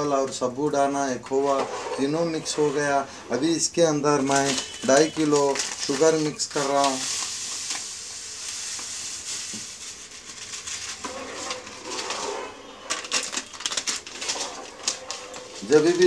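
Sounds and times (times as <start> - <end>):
ladle stirring in pot: 1.3 - 3.6, 8.7 - 16.0
plastic bag rustling: 1.4 - 16.0
sugar pouring hiss: 5.4 - 12.0.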